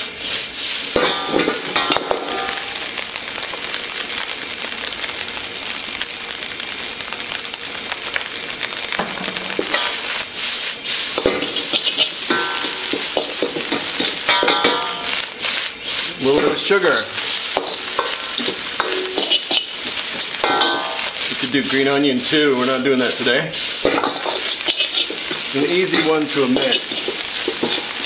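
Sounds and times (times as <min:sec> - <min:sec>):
rice sizzling in a wok: 0:00.0 - 0:28.0
ladle scraping a wok: 0:09.6 - 0:28.0.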